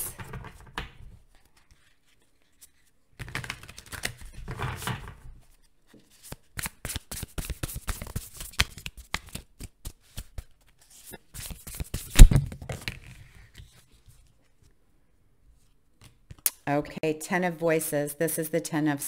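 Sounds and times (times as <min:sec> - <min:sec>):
cards being shuffled: 0:00.3 - 0:05.0, 0:05.6 - 0:14.3
cards thumping down: 0:11.4 - 0:13.1.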